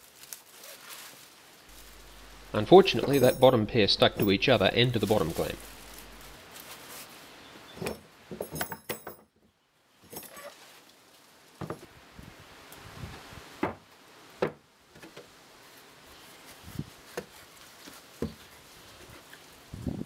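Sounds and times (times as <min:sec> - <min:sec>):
metal clamp parts clinking: 0:01.8 - 0:06.4.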